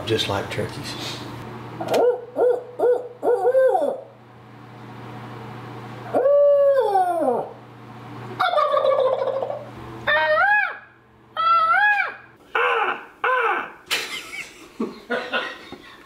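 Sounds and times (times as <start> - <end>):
man hooting like an owl: 2.4 - 4.2, 6.0 - 7.6, 11.4 - 13.8.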